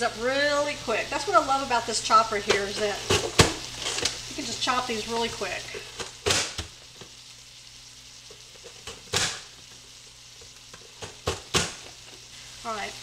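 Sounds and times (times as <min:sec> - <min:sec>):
meat sizzling in a skillet: 0:00.0 - 0:13.0.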